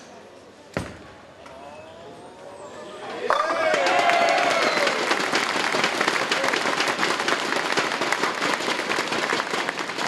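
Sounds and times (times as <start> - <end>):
audience applauding: 3.3 - 10.0.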